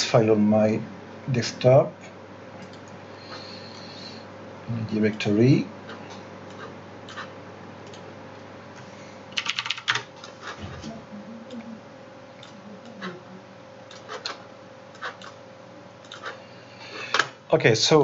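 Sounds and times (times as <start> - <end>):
faint electrical hum: 0.0 - 18.0
keyboard typing: 9.3 - 10.6, 16.0 - 16.4.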